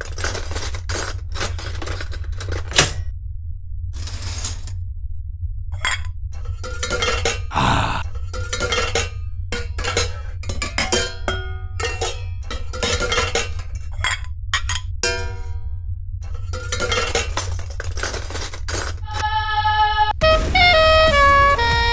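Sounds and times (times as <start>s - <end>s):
clattering crash: 0.0s - 3.1s, 5.8s - 7.5s, 8.1s - 19.2s, 20.2s - 21.9s
steady low hum: 0.0s - 20.2s
metal pots and pans clanging: 5.8s - 7.5s, 8.1s - 15.6s, 16.3s - 19.0s.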